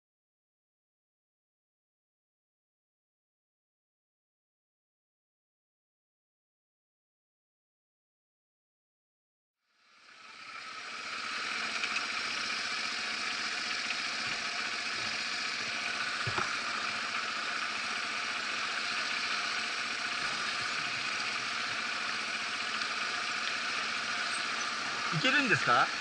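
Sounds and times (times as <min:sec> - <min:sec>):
motorcycle engine idling: 0:09.8 - 0:26.0.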